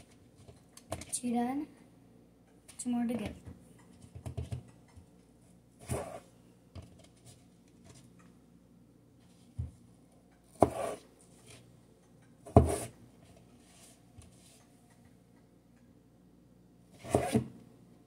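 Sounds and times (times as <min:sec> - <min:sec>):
knife cutting potato on board: 0:10.5 - 0:11.0, 0:12.4 - 0:12.9, 0:17.0 - 0:17.5.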